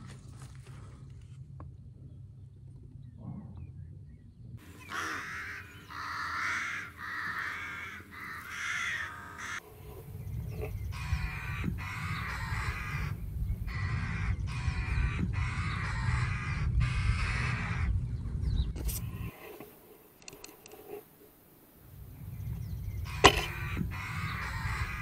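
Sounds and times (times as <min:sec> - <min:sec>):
corvids harsh calls: 0:04.6 - 0:09.7.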